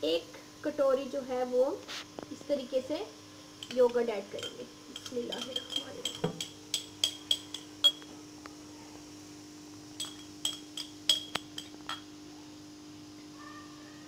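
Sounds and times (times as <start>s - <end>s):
faint steady hum: 0.0s - 14.0s
metal spoon clinking on glass bowl: 3.6s - 8.1s, 10.0s - 12.1s.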